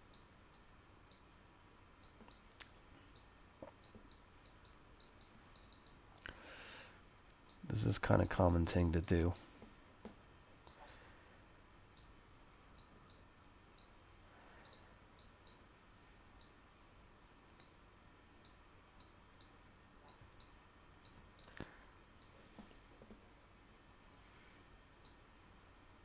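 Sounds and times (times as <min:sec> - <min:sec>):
computer mouse clicks: 0:02.0 - 0:06.3, 0:12.8 - 0:13.2, 0:14.6 - 0:15.6, 0:16.4 - 0:16.6, 0:17.6 - 0:17.8, 0:18.4 - 0:23.2, 0:25.0 - 0:25.2.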